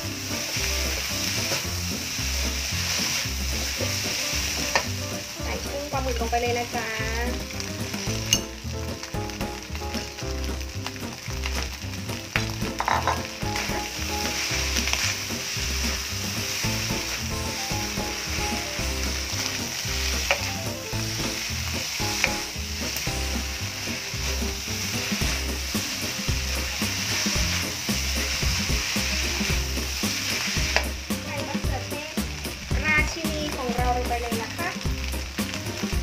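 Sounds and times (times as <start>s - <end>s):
food sizzling in a wok: 0.0s - 36.0s
spatula knocking on pan: 7.4s - 33.2s.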